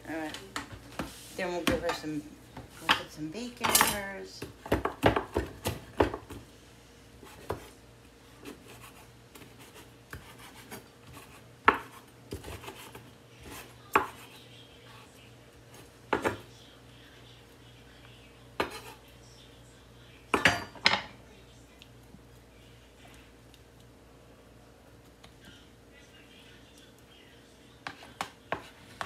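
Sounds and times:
faint steady hum: 0.0 - 29.0
utensils clinking on dishes: 2.9 - 4.1, 20.4 - 21.2.

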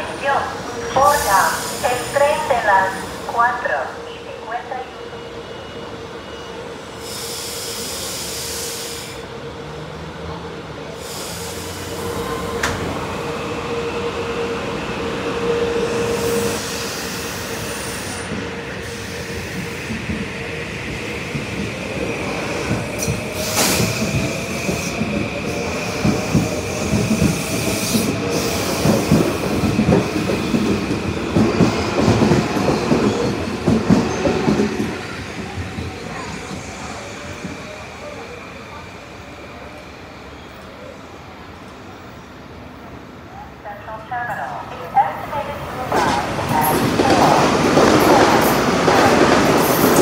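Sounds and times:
train wheel clatter: 45.9 - 50.0.

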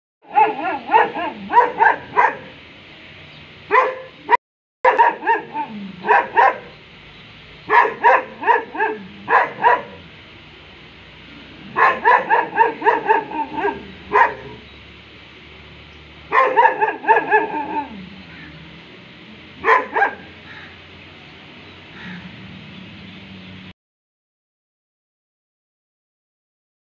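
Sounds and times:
dog barking: 0.2 - 2.6, 3.7 - 6.7, 7.7 - 10.0, 11.7 - 14.6, 16.3 - 18.0, 19.6 - 20.7.

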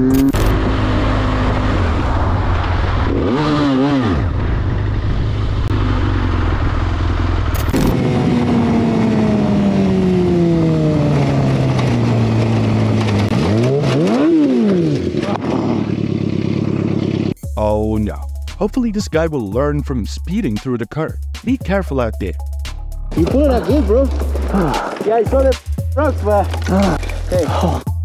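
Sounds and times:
motorcycle engine revving: 0.0 - 17.4, 23.1 - 27.5
heavy wind noise: 0.4 - 9.2.

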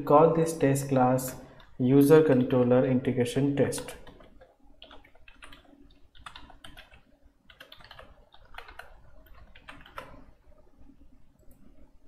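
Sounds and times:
typing on a keyboard: 1.6 - 2.6, 3.8 - 10.3.

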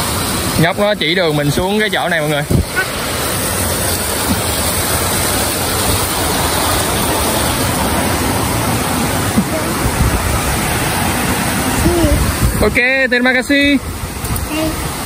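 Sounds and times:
flowing water rushing: 0.0 - 15.0.

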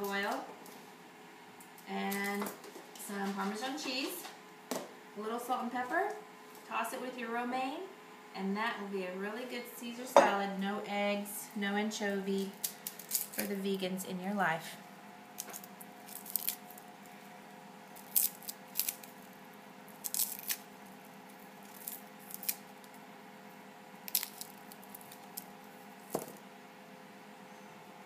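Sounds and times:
garlic skins crackling and rustling: 12.4 - 13.8, 15.4 - 17.3, 17.9 - 23.0, 24.0 - 26.4.

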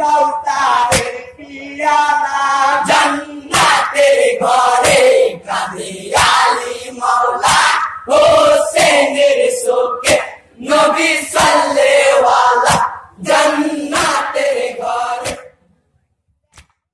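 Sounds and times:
men singing together: 0.0 - 15.5
sharp hand clap: 0.9 - 1.2, 3.5 - 3.8, 15.2 - 15.4, 16.5 - 16.9.

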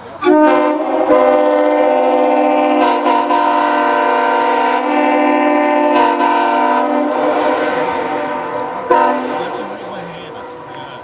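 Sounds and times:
air horn chord: 0.2 - 9.8.

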